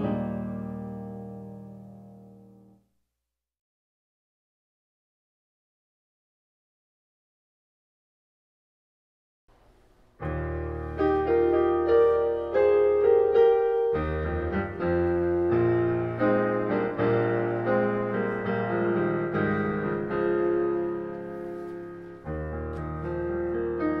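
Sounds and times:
piano music: 0:00.0 - 0:02.8, 0:10.2 - 0:24.0.

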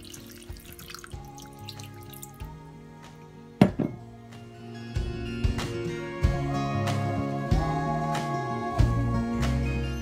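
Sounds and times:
water trickling into a pot: 0:00.0 - 0:02.6
background music: 0:00.0 - 0:10.0.

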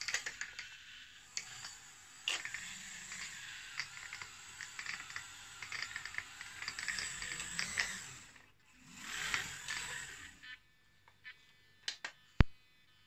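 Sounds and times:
toy tractor clicking rattle: 0:00.0 - 0:10.4.

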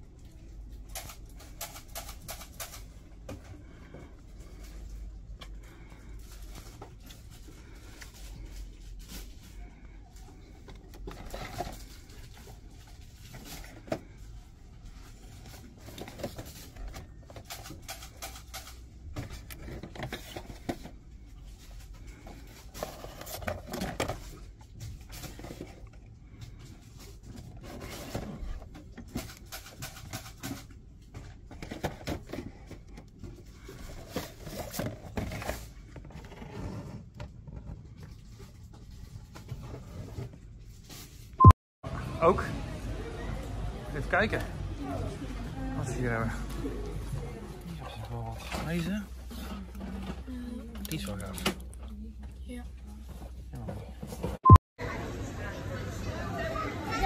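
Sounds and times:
toy boxes clicking and rustling: 0:00.6 - 0:03.1, 0:14.9 - 0:25.9, 0:26.8 - 0:36.2.

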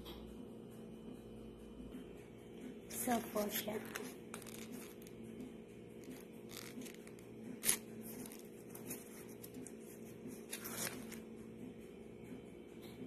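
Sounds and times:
steady low hum: 0:00.0 - 0:13.0
hand rustling bread buns: 0:06.0 - 0:11.2
sharp scrape: 0:06.5 - 0:08.4.

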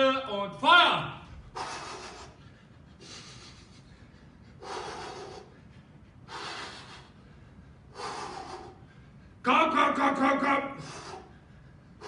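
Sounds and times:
man breathing hard: 0:01.3 - 0:09.4, 0:10.7 - 0:12.0.

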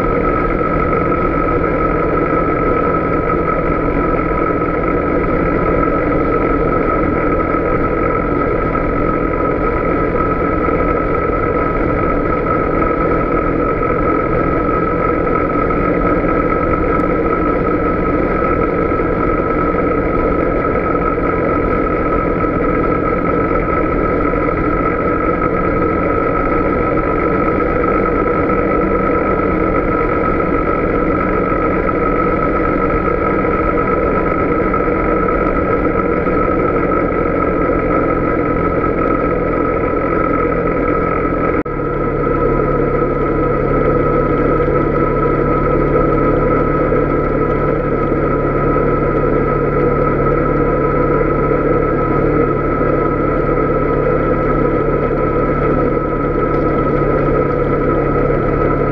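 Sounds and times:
atv engine running: 0:00.0 - 0:58.9
high steady whine: 0:00.0 - 0:58.9.

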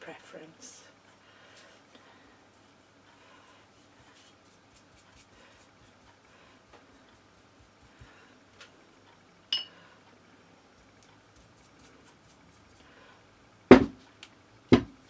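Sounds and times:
glass bottle clink: 0:09.5 - 0:09.7
dull knock: 0:13.7 - 0:14.0, 0:14.7 - 0:15.0.

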